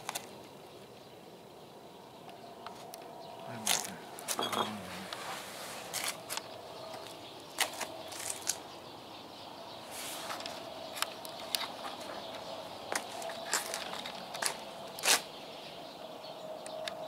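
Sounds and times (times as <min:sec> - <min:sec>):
soft footsteps on concrete: 0:10.0 - 0:15.4.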